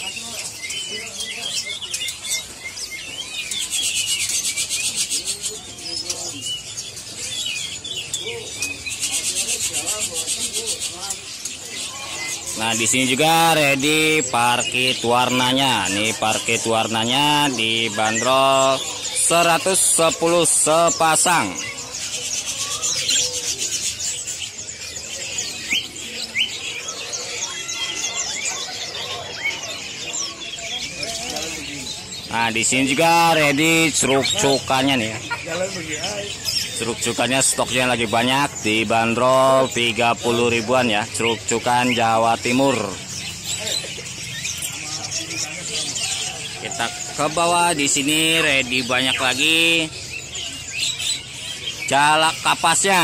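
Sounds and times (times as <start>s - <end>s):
budgerigars chattering: 0.0s - 53.0s
songbirds chirping and twittering: 0.0s - 53.0s.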